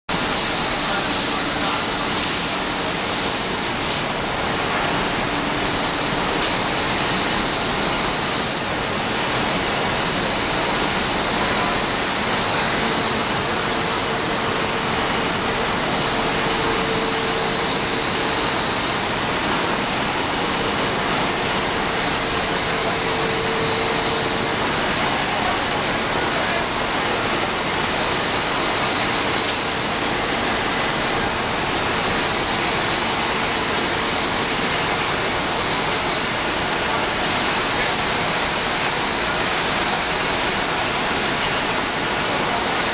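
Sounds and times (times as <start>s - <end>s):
steamer machine rushing noise: 0.1s - 28.3s.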